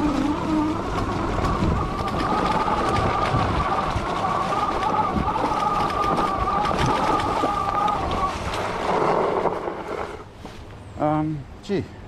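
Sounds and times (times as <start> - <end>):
electric motor whining: 0.0 - 10.3
tyres crunching on dirt: 0.0 - 11.0.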